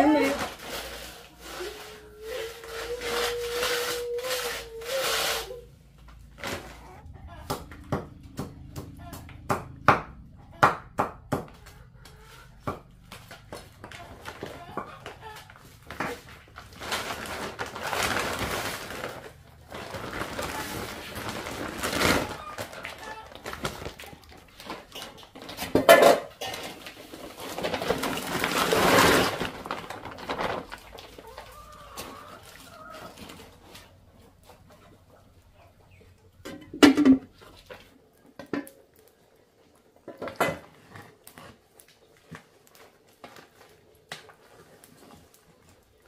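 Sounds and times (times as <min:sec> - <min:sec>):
chickens clucking: 0:06.5 - 0:15.9, 0:30.5 - 0:38.6
metal pot and lid clanking: 0:25.6 - 0:26.8.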